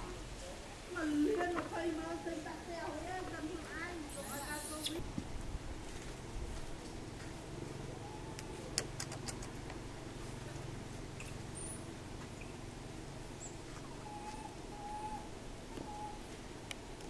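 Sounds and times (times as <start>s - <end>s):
high squeaks: 4.1s - 5.0s
animal clicks: 8.4s - 9.8s.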